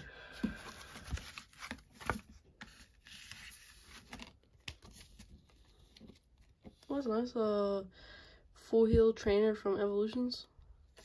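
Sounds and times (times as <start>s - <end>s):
cardboard rustling and tearing: 0.4s - 6.3s.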